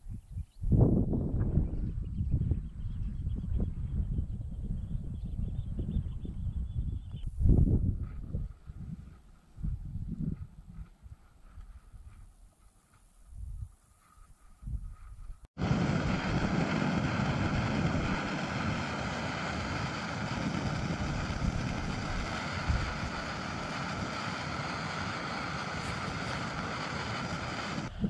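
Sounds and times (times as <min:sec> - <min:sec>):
gas stove roaring hiss: 0:15.6 - 0:28.0.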